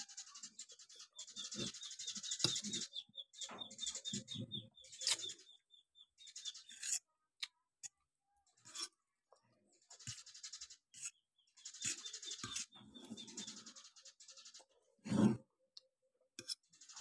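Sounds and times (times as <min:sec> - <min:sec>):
fork scraping on a ceramic plate: 0:01.4 - 0:02.9, 0:06.6 - 0:07.1, 0:08.6 - 0:09.0, 0:10.0 - 0:13.7, 0:15.0 - 0:15.5, 0:16.4 - 0:17.0.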